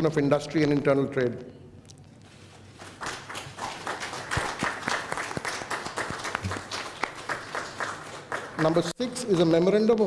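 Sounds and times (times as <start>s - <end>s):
audience applauding: 2.9s - 9.0s.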